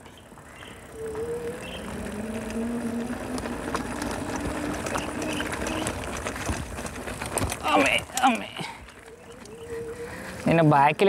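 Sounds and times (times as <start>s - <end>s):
small rattles and clicks: 0.0s - 10.5s
tyres rumbling on rough ground: 0.0s - 11.0s.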